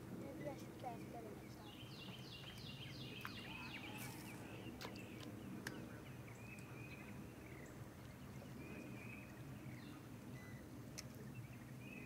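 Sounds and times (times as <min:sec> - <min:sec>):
bird chirps: 0:01.5 - 0:10.7.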